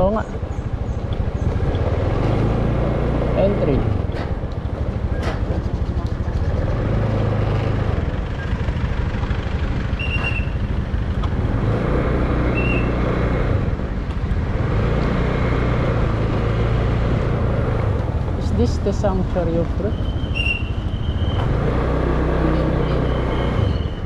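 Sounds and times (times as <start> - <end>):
scooter engine running: 0.0 - 18.4
road noise: 0.0 - 24.0.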